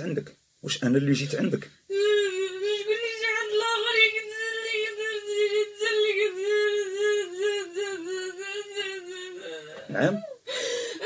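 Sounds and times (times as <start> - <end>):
woman wailing: 1.9 - 10.4.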